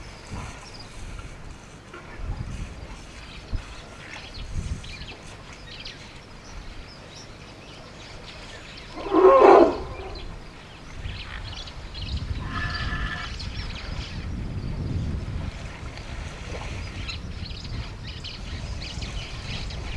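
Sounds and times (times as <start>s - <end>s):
wind rumble on microphone: 0.0s - 19.9s
elephant roar: 8.9s - 10.3s, 12.4s - 13.3s
faint higher elephant call: 8.9s - 10.4s, 12.4s - 13.4s.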